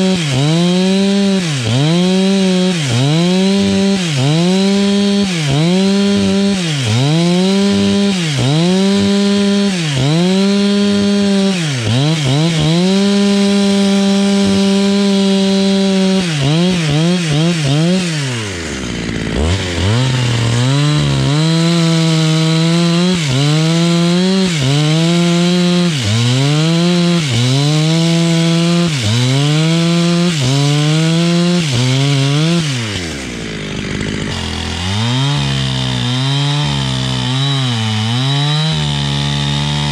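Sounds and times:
chainsaw cutting wood: 0.0 - 39.9.

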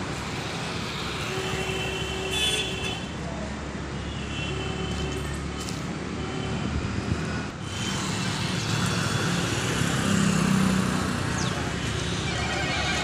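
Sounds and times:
motor vehicle rumbling: 4.9 - 13.0.

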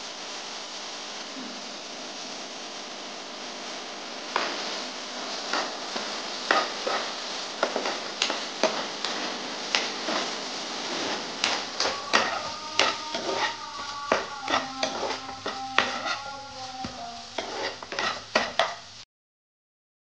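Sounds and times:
vegetables frying in a pan: 0.0 - 19.0
metal spatula scraping a pan: 5.4 - 18.8.

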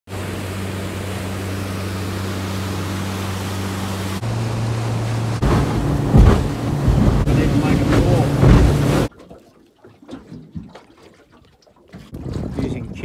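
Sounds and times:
outboard motor droning: 0.1 - 9.1
rush of wind and water: 0.1 - 9.1, 10.0 - 13.0.

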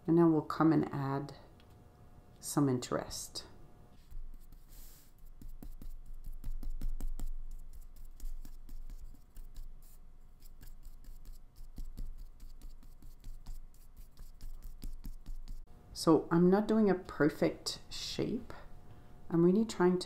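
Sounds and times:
paintbrush dabbing on paper: 4.0 - 15.7.

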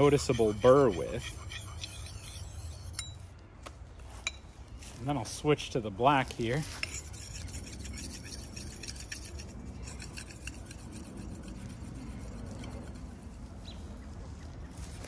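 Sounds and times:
sharpening stone scraping axe edge: 0.0 - 3.3, 6.5 - 13.2.

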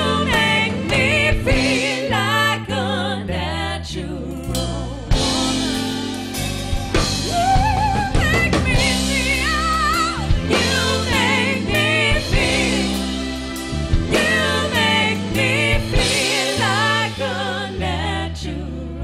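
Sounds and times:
band playing: 0.0 - 2.5, 4.4 - 17.7
bass notes: 0.0 - 19.0
lead singer singing: 4.0 - 18.6.

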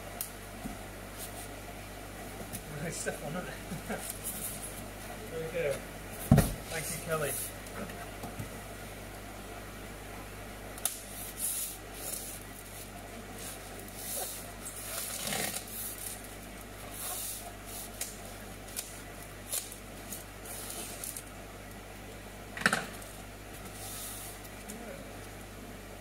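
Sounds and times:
blade slitting packing tape: 14.2 - 16.3.

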